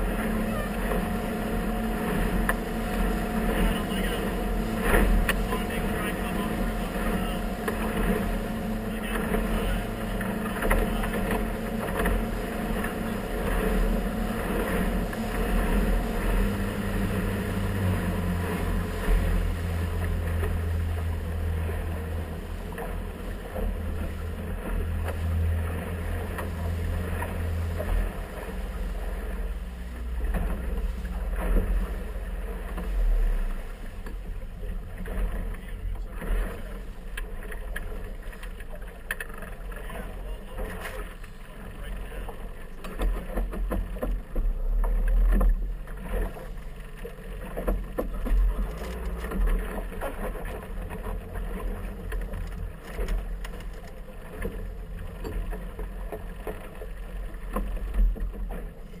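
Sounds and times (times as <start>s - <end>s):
outboard motor running: 0.0s - 59.0s
water noise: 0.0s - 59.0s
wind: 0.0s - 59.0s.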